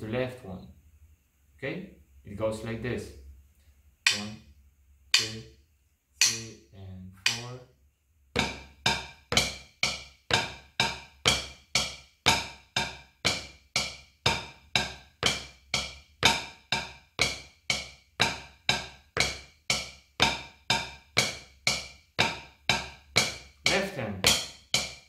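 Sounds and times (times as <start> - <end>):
drumsticks tapping practice pad: 4.0 - 4.4, 5.1 - 5.5, 6.2 - 6.6, 7.2 - 7.6, 8.4 - 25.0.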